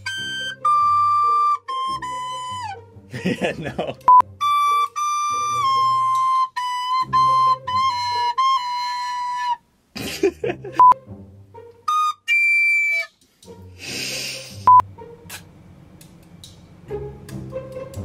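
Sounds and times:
recorder played badly: 0:04.1 - 0:09.6, 0:11.9 - 0:13.1
breathy puffs: 0:13.7 - 0:14.8.

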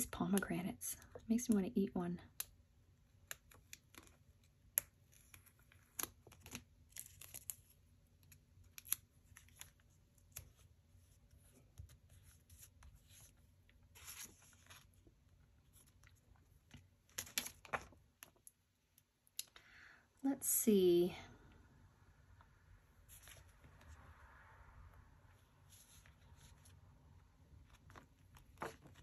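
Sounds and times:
paper rustling: 0:08.8 - 0:18.3, 0:27.6 - 0:29.0.

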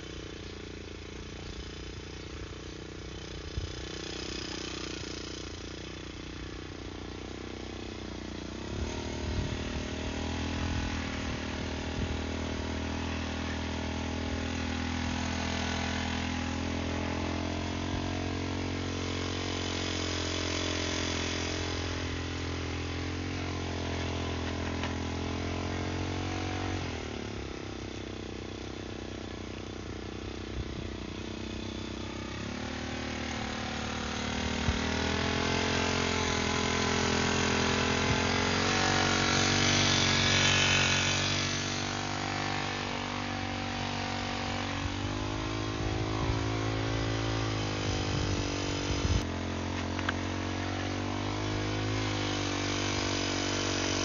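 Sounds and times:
brush cutter engine under load: 0:00.0 - 0:54.0
mixer churning cement and gravel: 0:32.0 - 0:54.0.

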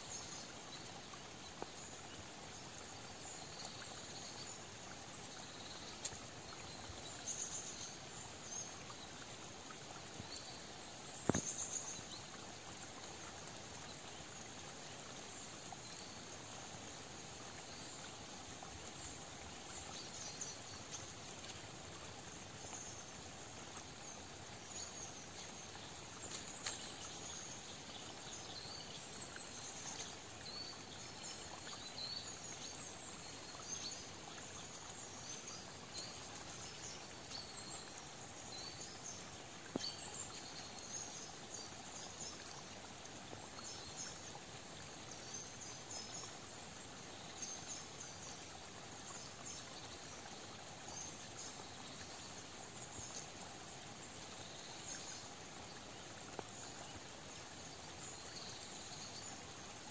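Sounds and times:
soft steady hiss: 0:00.0 - 0:59.9
faint clicks: 0:11.1 - 0:12.0.

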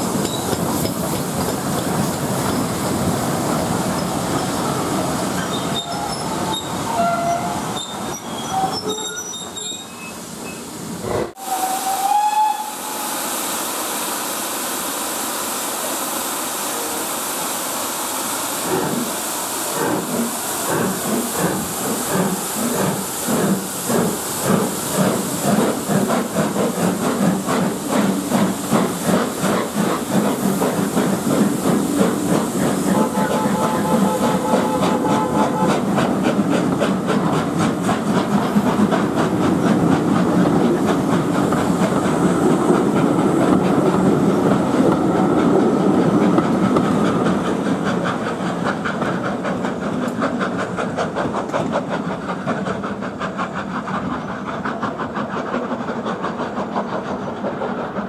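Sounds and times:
train wheels rolling: 0:00.0 - 0:10.6, 0:19.7 - 0:58.0
steam hissing: 0:00.0 - 0:58.0
flange squeals: 0:05.4 - 0:10.6
train whistle: 0:05.5 - 0:07.6, 0:11.4 - 0:13.3, 0:32.9 - 0:35.9
steam locomotive exhaust chuffs: 0:18.0 - 0:58.0.

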